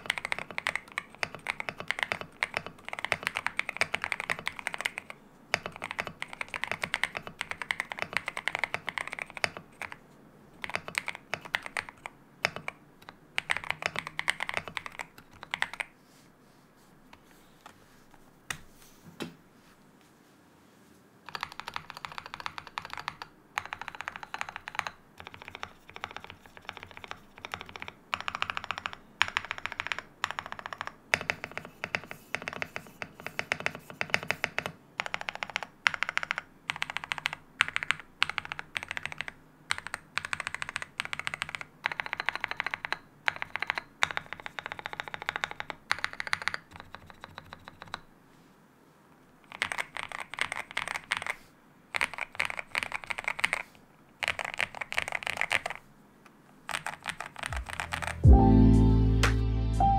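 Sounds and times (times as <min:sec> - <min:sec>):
mechanical keyboard typing: 0:00.0 - 0:10.0, 0:10.6 - 0:15.9, 0:21.2 - 0:48.1, 0:49.5 - 0:55.8, 0:56.6 - 0:58.3.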